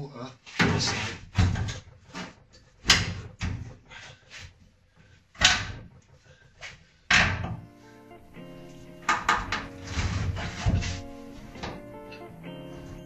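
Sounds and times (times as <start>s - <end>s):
metal clunks and knocks: 0.6s - 3.8s, 7.1s - 7.7s, 9.0s - 12.3s.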